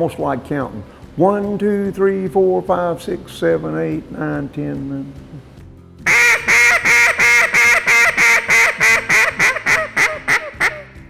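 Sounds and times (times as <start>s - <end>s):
duck call rapid quacks: 6.1s - 11.0s.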